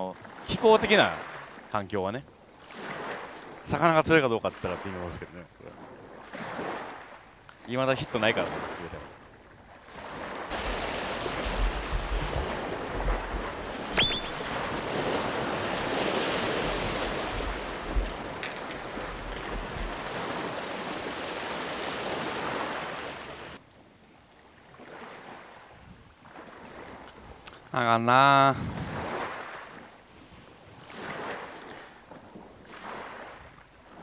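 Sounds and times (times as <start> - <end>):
waves breaking on rocks: 6.2 - 7.2, 9.9 - 23.6, 30.8 - 31.8, 32.7 - 33.5
wind rumbling on microphone: 10.0 - 23.6, 28.5 - 29.2
brief sharp high sound: 13.9 - 14.6.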